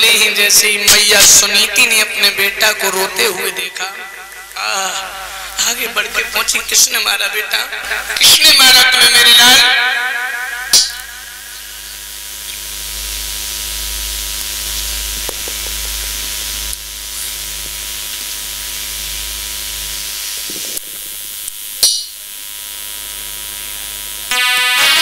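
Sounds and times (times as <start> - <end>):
steady hiss: 0.0 - 9.7, 10.6 - 25.0
faint electrical hum: 0.0 - 24.3
music: 24.3 - 25.0.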